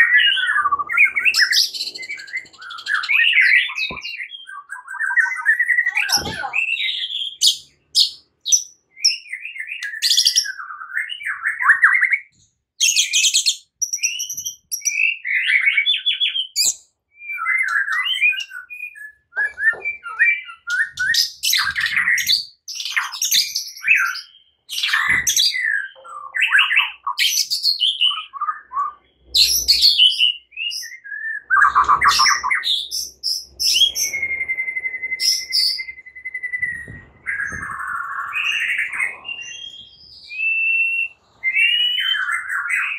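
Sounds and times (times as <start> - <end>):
songbird singing whistles and trills: 0.0 - 42.9.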